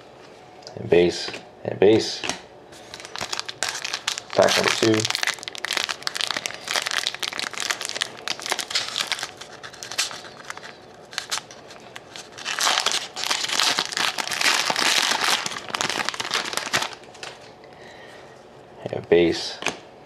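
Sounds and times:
foil wrapper crinkling: 0:02.8 - 0:17.5.

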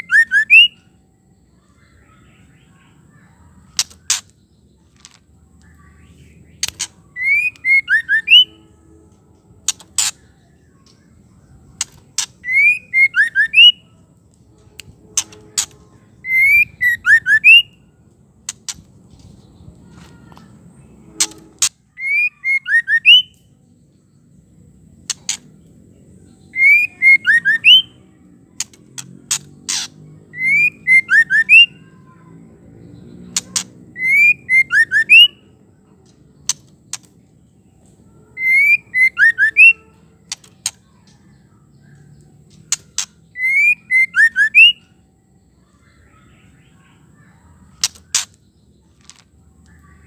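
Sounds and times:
bird calling with clicks and whistles: 0:00.0 - 0:00.9, 0:01.6 - 0:08.6, 0:11.7 - 0:13.9, 0:14.6 - 0:17.8, 0:21.1 - 0:23.5, 0:26.5 - 0:31.8, 0:33.3 - 0:35.5, 0:37.8 - 0:45.0.

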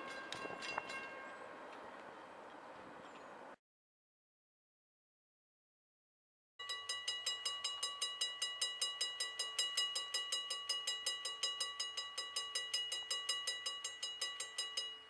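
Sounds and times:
crossing warning bell ringing: 0:00.0 - 0:01.5, 0:06.6 - 0:15.0.

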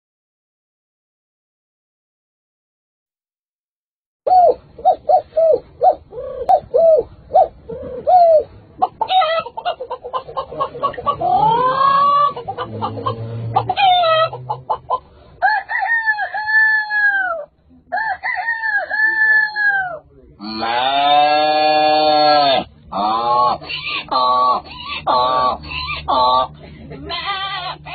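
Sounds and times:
man imitating chicken clucks: 0:07.9 - 0:15.0, 0:16.4 - 0:27.9
man imitating rooster crows: 0:15.4 - 0:24.4.

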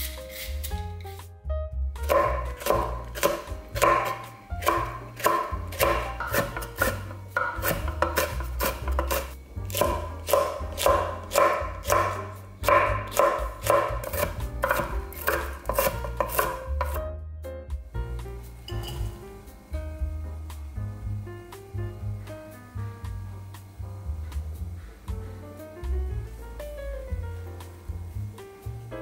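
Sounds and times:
background music: 0:00.0 - 0:29.0
knife chopping on wooden board: 0:02.1 - 0:17.0.

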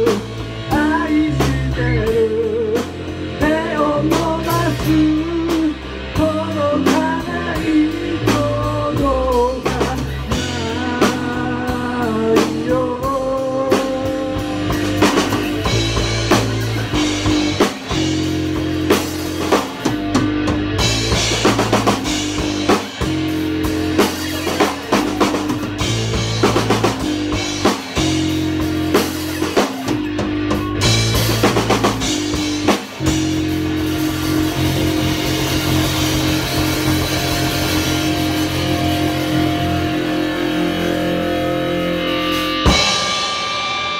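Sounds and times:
bass guitar: 0:00.0 - 0:43.9
drum kit: 0:00.0 - 0:43.9
electric guitars: 0:00.0 - 0:43.9.

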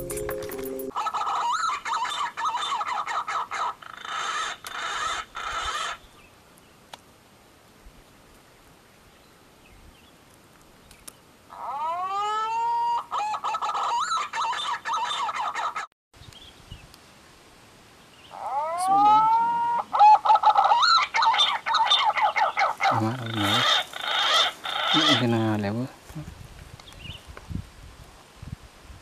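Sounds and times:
pigeon warbling whistled calls: 0:11.6 - 0:15.9, 0:18.4 - 0:25.2.

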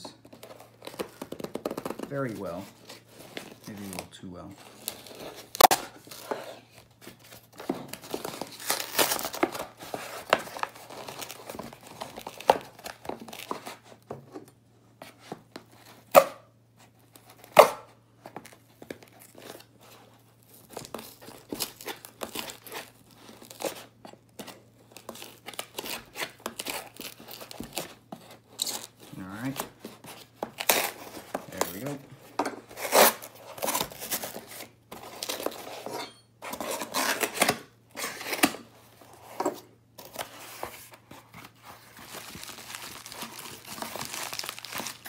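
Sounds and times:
cardboard tearing and rustling: 0:00.3 - 0:14.1, 0:16.8 - 0:45.0
metal blade slitting cardboard: 0:32.7 - 0:38.6.

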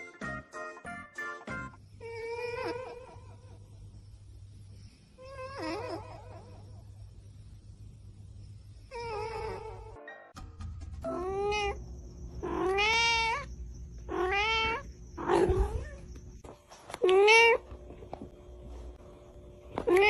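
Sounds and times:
cat meowing: 0:12.4 - 0:13.5, 0:14.1 - 0:16.0.

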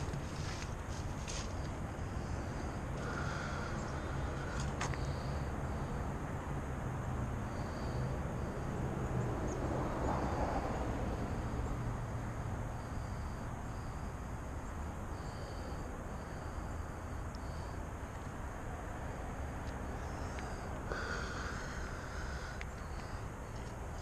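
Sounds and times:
steady low rumble: 0:00.0 - 0:24.0
vehicle passing: 0:00.0 - 0:24.0
high insect chirps: 0:07.4 - 0:24.0.

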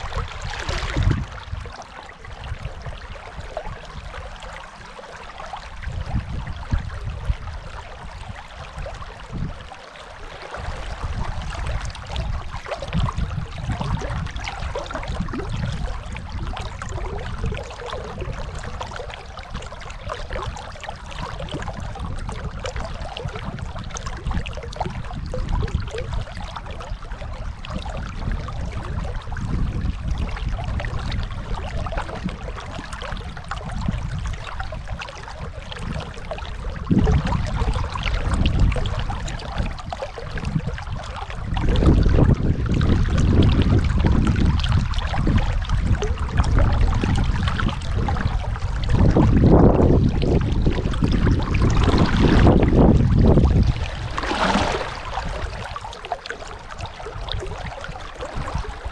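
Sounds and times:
deep water rumble: 0:00.0 - 0:58.9
river water rushing: 0:54.0 - 0:56.8.

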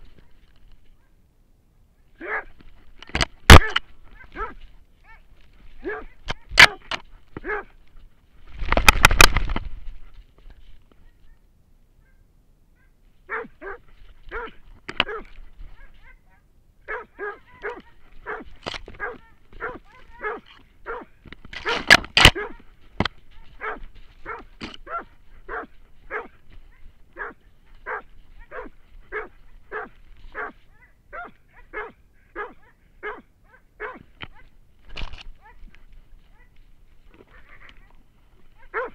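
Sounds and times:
dog barking: 0:02.2 - 0:02.5, 0:03.5 - 0:05.2, 0:05.8 - 0:07.8, 0:12.8 - 0:22.7, 0:23.3 - 0:34.5, 0:37.3 - 0:38.0, 0:38.6 - 0:38.9.

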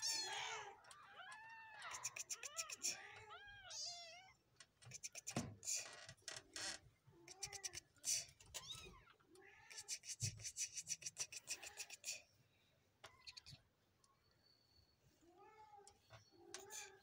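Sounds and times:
kittens mewing: 0:00.0 - 0:05.9, 0:07.2 - 0:12.3, 0:15.4 - 0:17.0.

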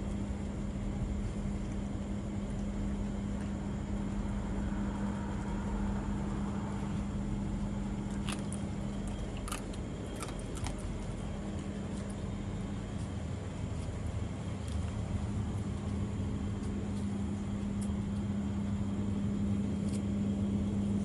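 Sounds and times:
steady low hum: 0:00.0 - 0:21.0
dog eating from plastic bowl: 0:07.9 - 0:12.2
teeth clicking on bowl: 0:08.1 - 0:10.9.

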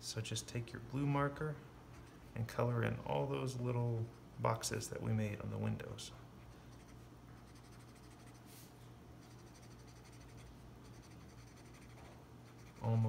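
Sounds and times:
marker scratching on paper: 0:06.7 - 0:13.0.

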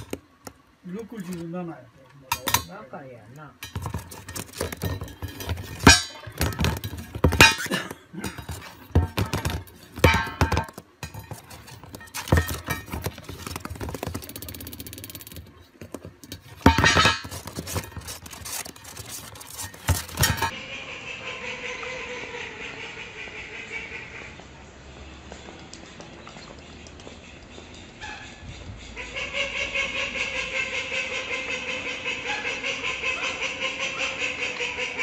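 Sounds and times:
plastic dish knocking on cardboard: 0:03.7 - 0:14.3.

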